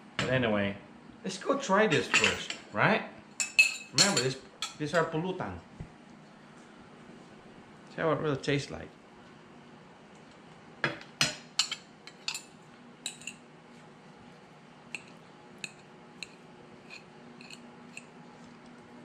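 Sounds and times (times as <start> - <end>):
fork clinking on ceramic plate: 3.4 - 4.8.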